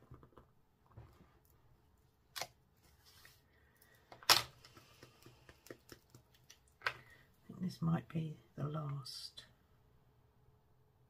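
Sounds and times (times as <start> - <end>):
faint paper rustling: 2.8 - 3.8.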